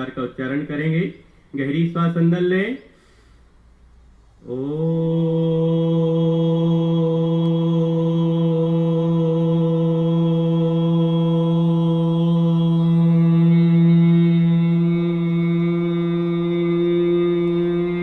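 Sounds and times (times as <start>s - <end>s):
man chanting om: 4.4s - 18.0s.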